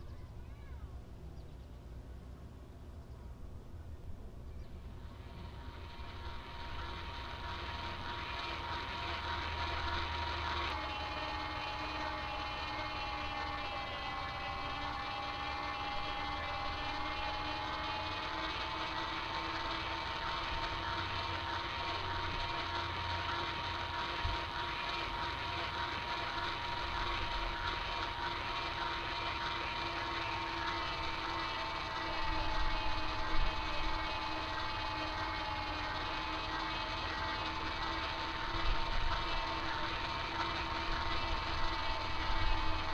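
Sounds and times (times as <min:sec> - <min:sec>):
toy boat motor whining: 0:04.7 - 0:42.9.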